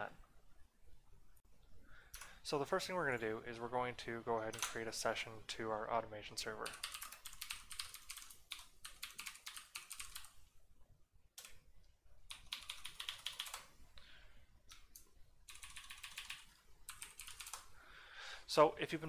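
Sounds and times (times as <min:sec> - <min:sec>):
computer keyboard typing: 0:04.5 - 0:04.8, 0:06.6 - 0:10.4, 0:12.3 - 0:13.7, 0:14.7 - 0:17.7.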